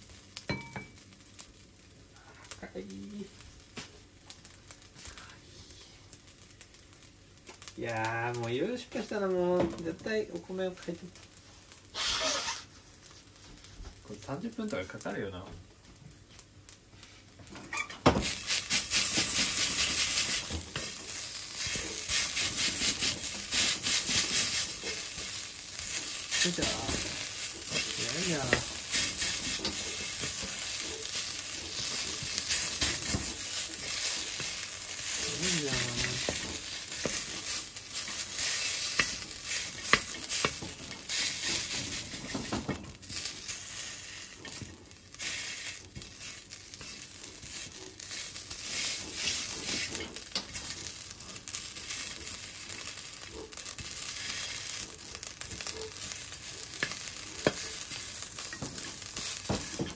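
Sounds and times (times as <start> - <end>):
rice sizzling in a wok: 0.0 - 59.9
wooden spatula scraping pan: 18.2 - 44.6, 45.2 - 52.3.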